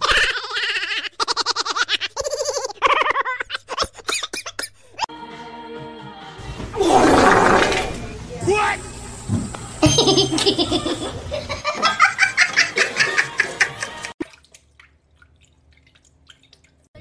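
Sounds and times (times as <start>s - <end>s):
person laughing and giggling: 0.0s - 5.1s, 9.8s - 14.1s.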